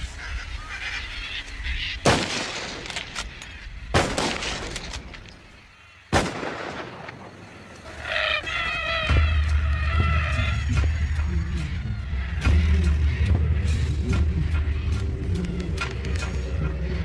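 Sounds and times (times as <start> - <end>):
rifle shots echoing: 2.0 - 3.3, 3.9 - 5.1, 6.1 - 7.5.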